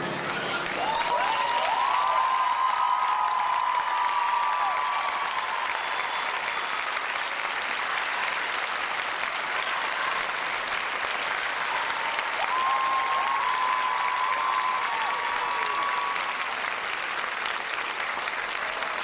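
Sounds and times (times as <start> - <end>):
crowd calls: 0.0 - 8.5
audience applauding: 0.0 - 19.0.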